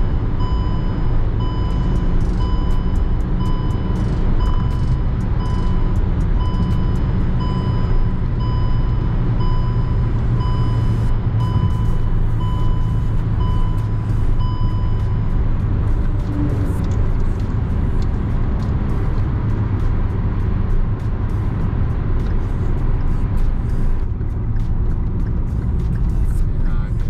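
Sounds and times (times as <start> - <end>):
dashboard warning chime beeping: 0.0 - 17.4
car engine and tyres droning: 0.0 - 27.0.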